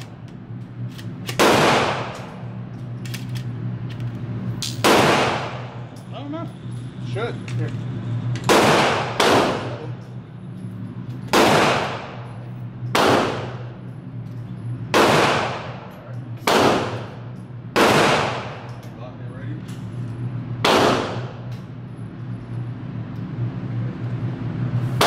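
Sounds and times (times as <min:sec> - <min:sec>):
steady low hum: 0:00.0 - 0:25.0
gunshots echoing indoors: 0:01.2 - 0:02.6, 0:04.8 - 0:05.9, 0:08.4 - 0:10.1, 0:11.2 - 0:13.9, 0:14.8 - 0:18.8, 0:20.5 - 0:21.6.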